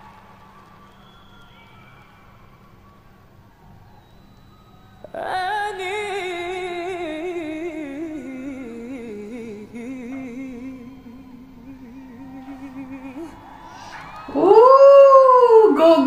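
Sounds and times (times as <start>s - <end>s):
man singing long vibrato note: 5.0s - 14.4s.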